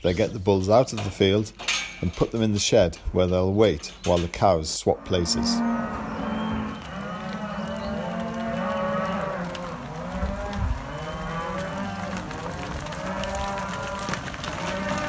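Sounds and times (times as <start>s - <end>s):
cows and calves mooing: 4.8s - 15.0s.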